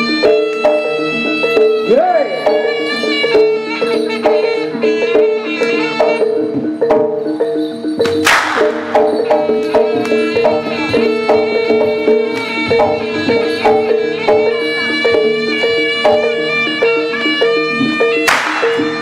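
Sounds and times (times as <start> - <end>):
gamelan ensemble ringing notes: 0.0 - 19.0
reedy wind instrument melody: 0.0 - 19.0
drums: 2.6 - 19.0
loud sharp crack: 8.2 - 8.8, 18.2 - 18.8.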